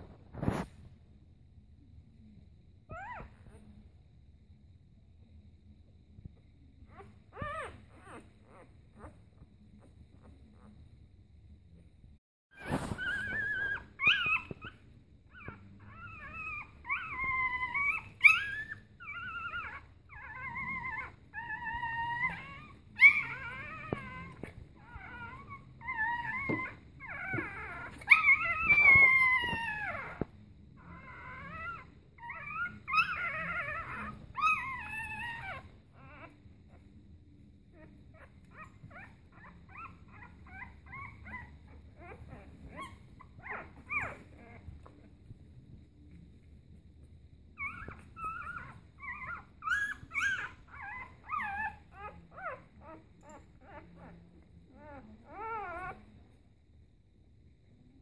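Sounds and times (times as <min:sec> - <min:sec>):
puppies squealing and whining: 0:06.9 - 0:09.2, 0:12.6 - 0:36.8, 0:37.7 - 0:45.1, 0:47.6 - 0:56.2.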